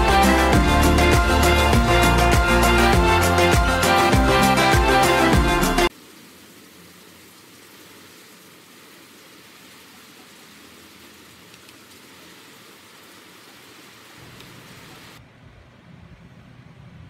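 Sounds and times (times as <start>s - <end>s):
background music: 0.0s - 5.9s.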